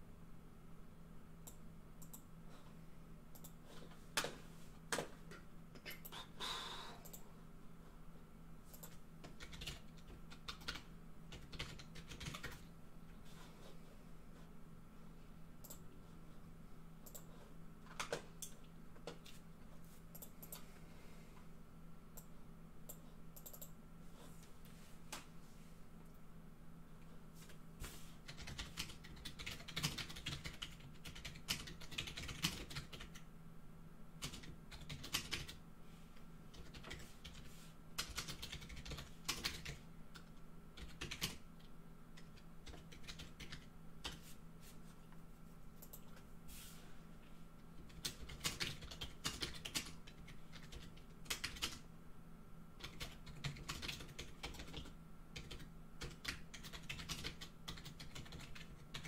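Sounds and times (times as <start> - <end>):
faint steady hum: 0.0 - 59.0
typing on computer keyboard: 8.7 - 12.7, 22.9 - 23.8, 28.3 - 33.3, 34.2 - 35.6, 36.5 - 44.2, 47.8 - 51.8, 52.8 - 59.0.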